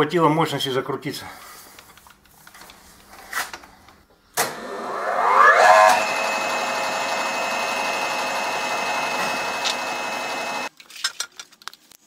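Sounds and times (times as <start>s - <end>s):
lathe motor whining and humming: 4.5s - 10.7s.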